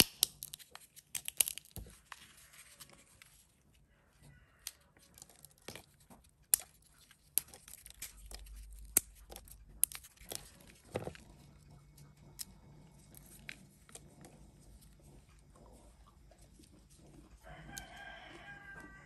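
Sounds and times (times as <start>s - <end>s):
nut shells snapping: 0.0s - 2.2s, 4.6s - 11.3s, 17.4s - 18.8s
shell pieces crackling: 0.0s - 3.3s, 4.6s - 11.2s.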